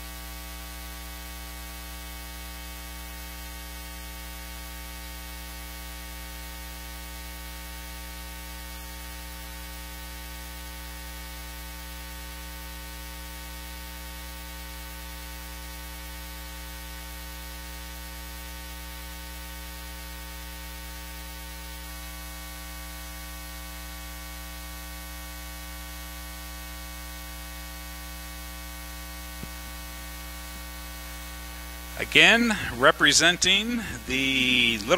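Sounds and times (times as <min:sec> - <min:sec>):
electrical mains hum: 0:27.2 - 0:34.9
constant hiss: 0:30.6 - 0:34.9.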